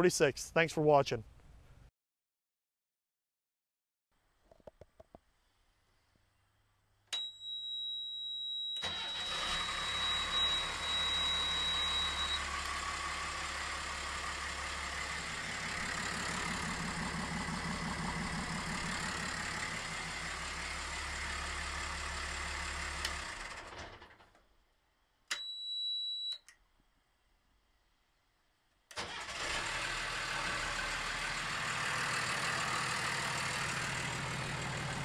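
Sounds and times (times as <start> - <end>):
high warning buzzer: 7.2 - 12.5
diesel engine running: 8.9 - 23.8, 29.0 - 35.0
click: 26.3 - 26.6.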